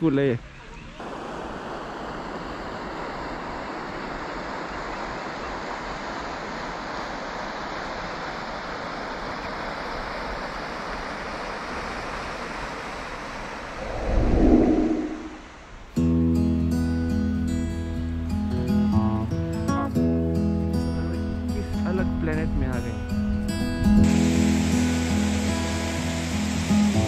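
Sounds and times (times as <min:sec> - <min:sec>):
outdoor rushing noise: 0:13.6 - 0:15.9
low rumble: 0:13.8 - 0:15.9.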